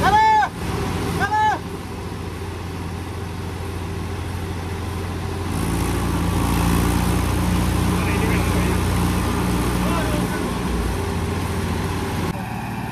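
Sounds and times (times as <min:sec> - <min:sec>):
tractor diesel engine straining: 0:00.0 - 0:12.9.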